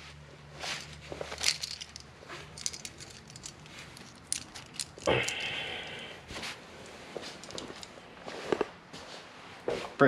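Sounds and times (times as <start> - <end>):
fabric rustling: 0.0 - 4.8
small metal fasteners clicking: 0.8 - 6.0, 7.3 - 7.9.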